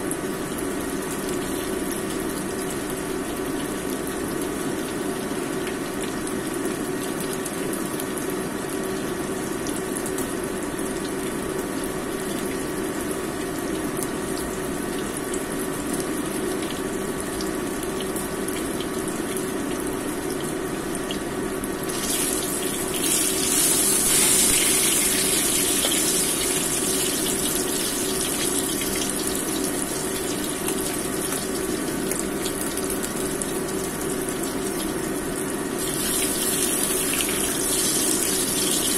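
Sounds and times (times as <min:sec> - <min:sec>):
fish sizzling in oil: 0:21.8 - 0:38.9.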